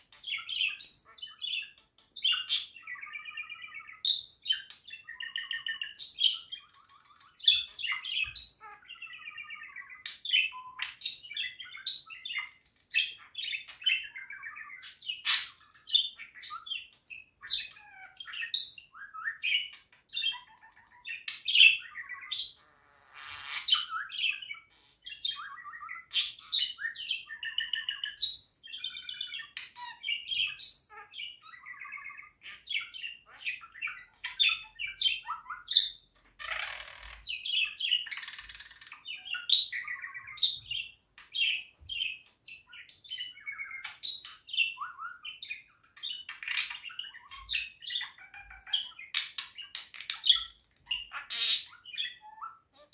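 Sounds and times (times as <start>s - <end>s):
scratchy buzzy bird passages: 0.0s - 52.9s
budgerigar warbling: 50.9s - 52.9s.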